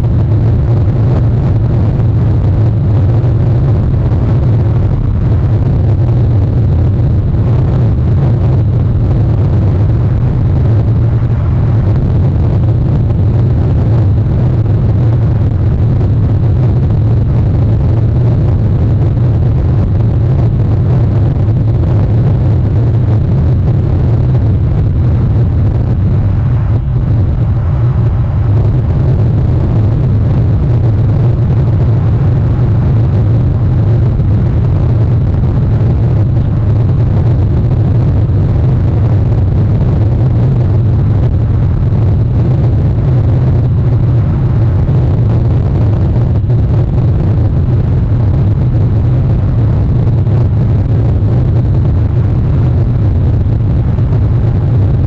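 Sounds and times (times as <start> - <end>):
steady low rumbling noise: 0.0 - 55.0.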